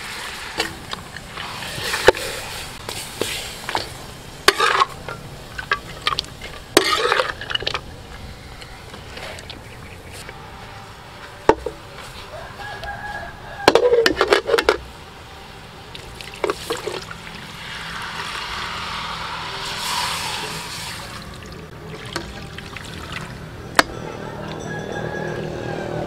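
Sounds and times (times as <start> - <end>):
water pouring into a wok: 0.0 - 4.9, 16.2 - 23.4
metal ladle clanking in a wok: 3.7 - 7.8.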